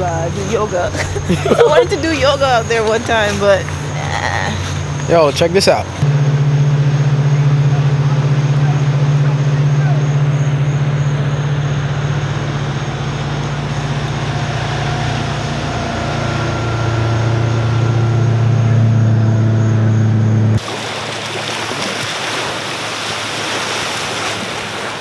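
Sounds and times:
motorboat engine running: 0:00.0 - 0:25.0
small waves breaking on shore: 0:20.6 - 0:25.0.

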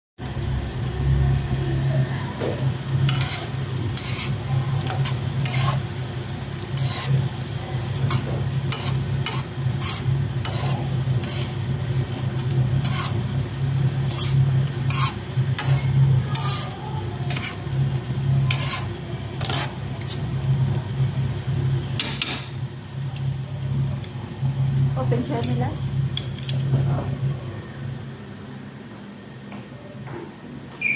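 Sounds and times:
light sizzle of frying: 0:00.2 - 0:28.2
steady low hum: 0:00.2 - 0:30.9
metal tongs scraping frying pan: 0:03.0 - 0:06.0, 0:06.6 - 0:13.3, 0:14.0 - 0:20.3.

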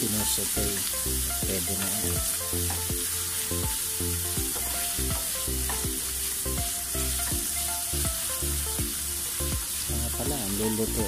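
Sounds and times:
background music: 0:00.0 - 0:11.0
vegetables sizzling in hot oil: 0:00.0 - 0:11.0
wooden spatula stirring: 0:04.5 - 0:07.2.

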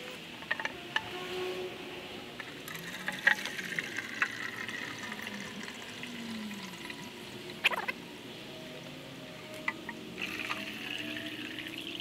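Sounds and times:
liquid pouring into plastic tub: 0:02.7 - 0:07.1.

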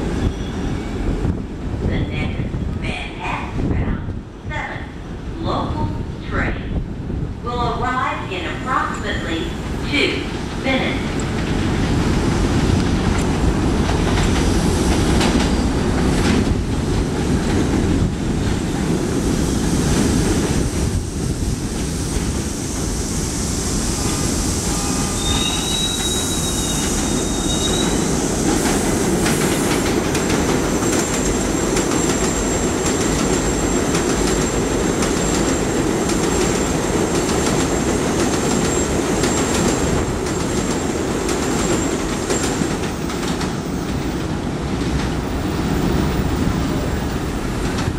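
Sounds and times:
high wheel squeal: 0:00.2 - 0:01.1, 0:24.2 - 0:28.2
train wheels rumbling on rails: 0:05.0 - 0:47.9.

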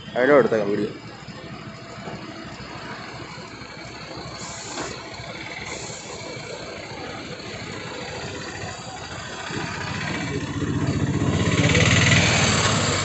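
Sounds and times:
truck diesel engine rumbling: 0:00.0 - 0:13.0
short air hisses: 0:04.4 - 0:06.3.

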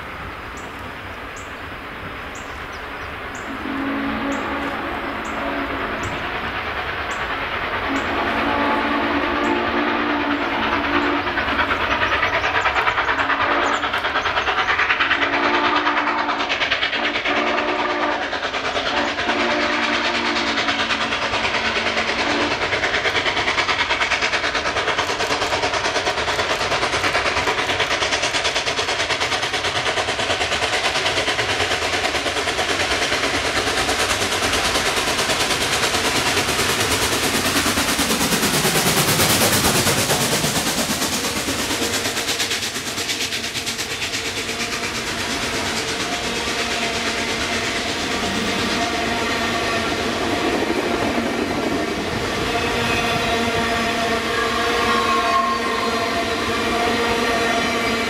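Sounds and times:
steam locomotive passing: 0:00.0 - 0:58.0
steam whistle blasts: 0:03.5 - 0:06.2, 0:07.9 - 0:11.4, 0:15.1 - 0:18.3, 0:18.9 - 0:20.9, 0:22.2 - 0:22.6, 0:52.1 - 0:58.0.

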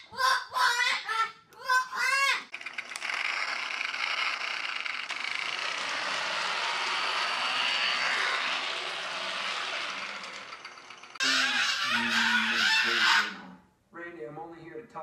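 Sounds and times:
toy motorcycle whirring and rattling: 0:02.5 - 0:13.3.

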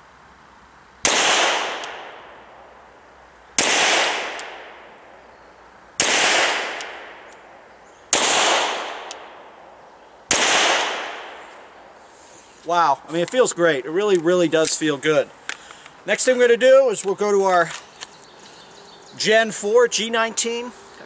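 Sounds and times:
pistol shots echoing: 0:01.0 - 0:02.6, 0:03.6 - 0:05.2, 0:06.0 - 0:07.4, 0:08.1 - 0:09.6, 0:10.3 - 0:11.5.

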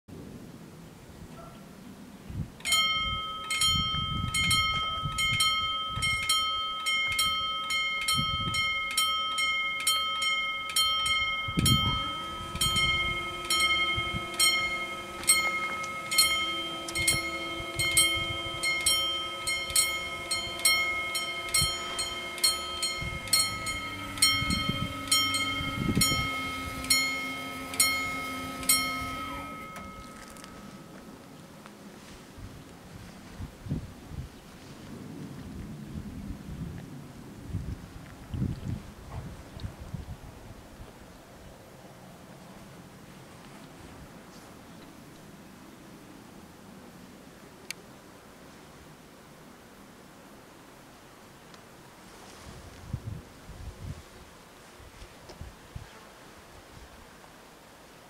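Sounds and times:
level crossing bells ringing: 0:02.6 - 0:31.4
barrier motors humming: 0:03.4 - 0:31.8.

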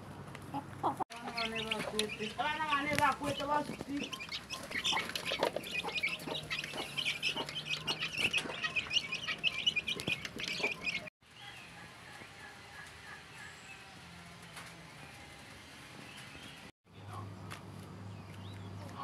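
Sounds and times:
chicks peeping: 0:00.4 - 0:13.8.

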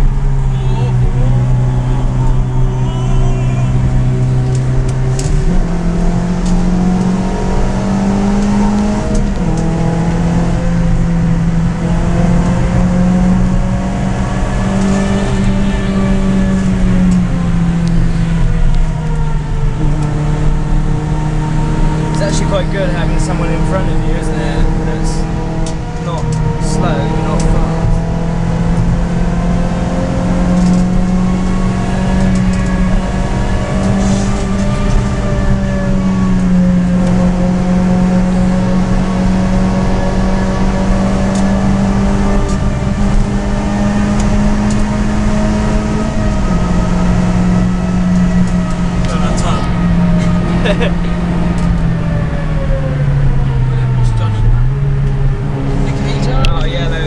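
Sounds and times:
car engine revving under hard driving: 0:00.0 - 0:57.0
tyre and road noise: 0:00.0 - 0:57.0.

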